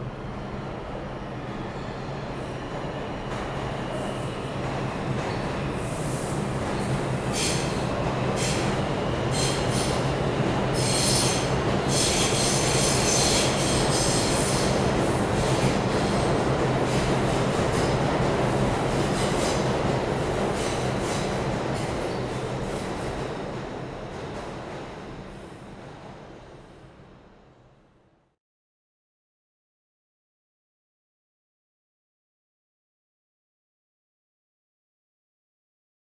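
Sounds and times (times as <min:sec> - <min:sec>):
subway train rumble: 0:00.0 - 0:28.4.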